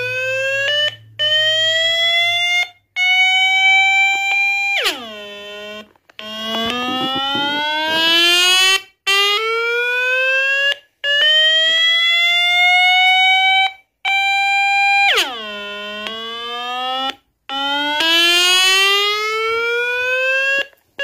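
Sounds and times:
loud buzzy electronic tone: 6.4s - 8.2s.

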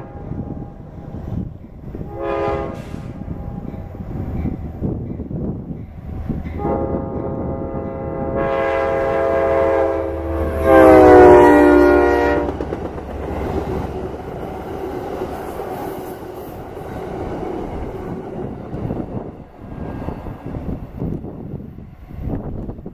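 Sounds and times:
locomotive air horn blast: 0.0s - 0.7s, 2.0s - 3.5s, 6.6s - 12.7s
train coaches rumbling past: 0.0s - 22.9s.

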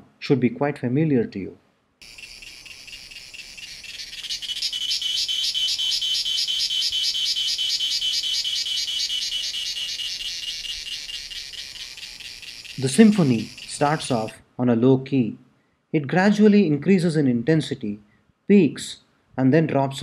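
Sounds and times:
cicadas buzzing: 2.0s - 14.4s.

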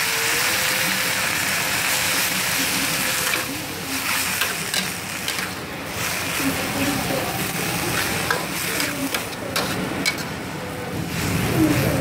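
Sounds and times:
food sizzling in a wok: 0.0s - 12.0s
metal ladle scraping a wok: 2.1s - 10.5s.

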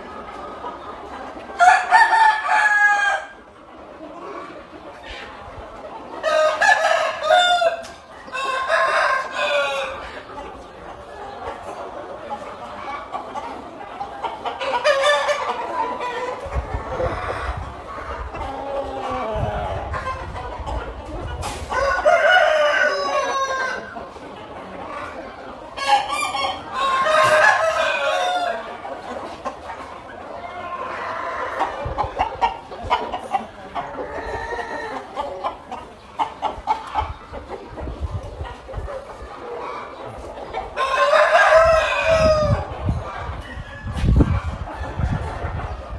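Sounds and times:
roosters crowing: 1.6s - 3.5s, 6.2s - 10.3s, 21.4s - 24.0s, 25.8s - 28.8s, 33.9s - 35.4s, 40.7s - 45.9s.

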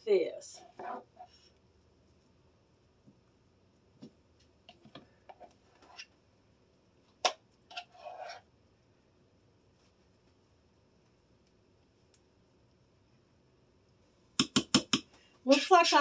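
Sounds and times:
spoon tapping plastic bowl: 14.4s - 15.1s.

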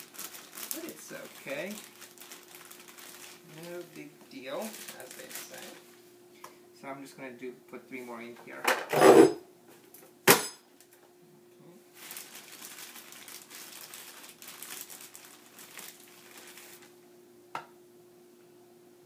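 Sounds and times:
plastic bag rustling: 0.0s - 6.0s, 11.9s - 17.0s.

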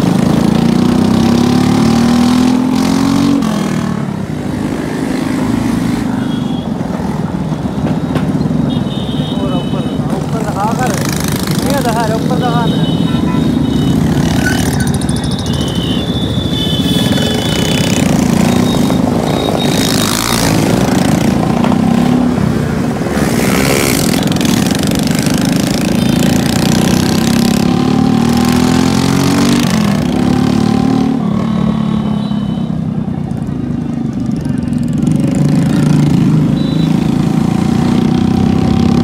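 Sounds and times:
road traffic: 0.0s - 39.0s.

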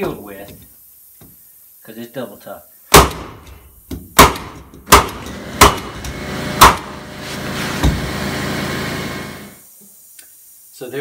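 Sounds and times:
steady mechanical hum: 2.5s - 11.0s
pneumatic stapler firing bangs: 2.9s - 3.6s, 4.2s - 7.2s.

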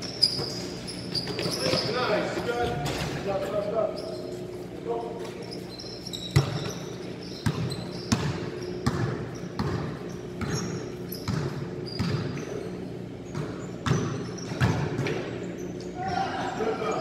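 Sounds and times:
basketballs bouncing on hard floor: 6.2s - 12.6s, 13.2s - 15.4s.

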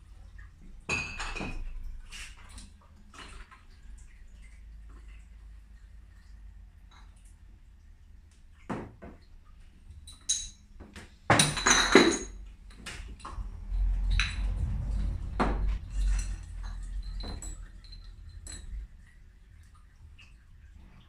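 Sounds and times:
glass bottles clinking: 0.9s - 1.8s, 10.1s - 10.6s, 11.3s - 12.4s, 15.8s - 18.8s
low rumble: 12.4s - 19.7s.

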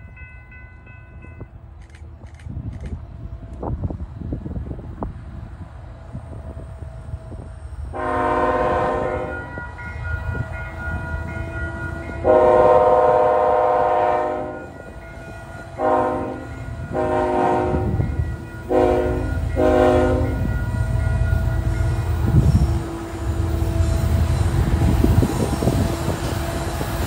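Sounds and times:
low rumble of train: 0.0s - 27.0s
locomotive air horn blasts: 7.9s - 9.5s, 12.1s - 14.8s, 15.6s - 20.7s.

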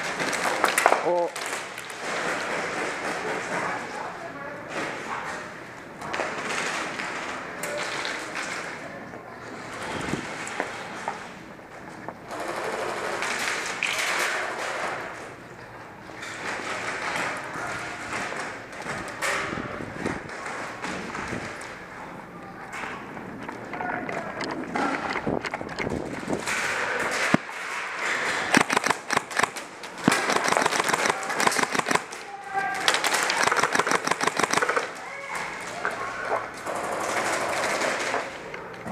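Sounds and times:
airsoft guns firing bursts: 28.2s - 35.0s
sharp gun clicks: 28.5s - 32.2s, 32.9s - 34.9s.

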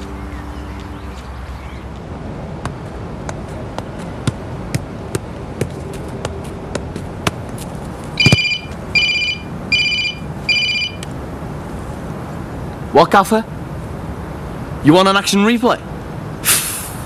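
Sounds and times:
sharp irregular taps: 2.6s - 8.6s
mobile phone ringing beeps: 8.2s - 11.0s.

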